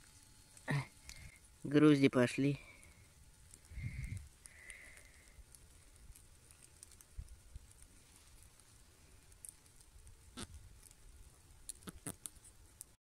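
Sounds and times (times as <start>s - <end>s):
faint ticks: 0.0s - 1.4s, 2.6s - 11.0s.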